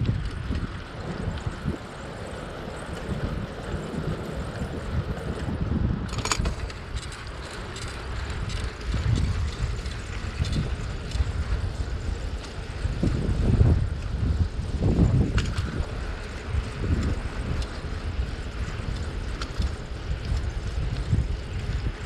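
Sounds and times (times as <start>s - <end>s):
bicycle tyres on pavement: 0.0s - 22.0s
wind buffeting microphone: 0.0s - 22.0s
light clicks and rattles: 2.7s - 13.2s, 15.2s - 22.0s.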